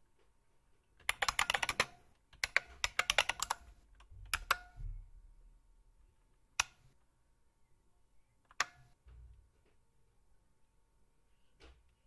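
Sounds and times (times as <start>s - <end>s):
clicky keyboard typing: 1.0s - 4.8s.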